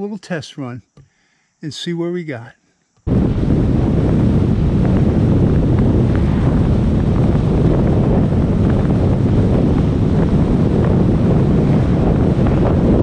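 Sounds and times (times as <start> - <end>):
wind buffeting microphone: 3.1 - 13.0
road noise: 4.2 - 13.0.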